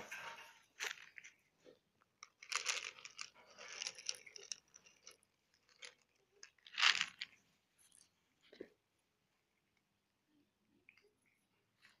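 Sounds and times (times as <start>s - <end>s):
cats crunching dry kibble: 0.7s - 8.1s.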